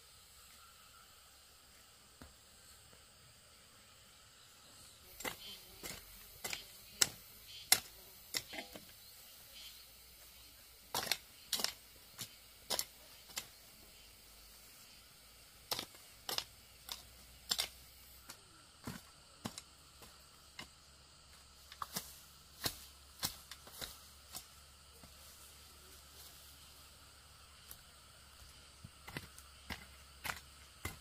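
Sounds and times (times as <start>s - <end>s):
sharp irregular clicks and snaps: 15.7s - 18.4s.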